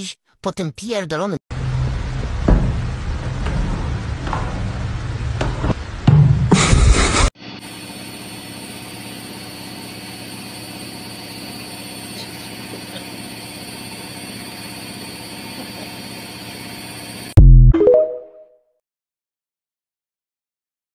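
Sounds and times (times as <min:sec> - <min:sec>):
washing machine running: 0:01.5 - 0:06.6, 0:07.5 - 0:17.4.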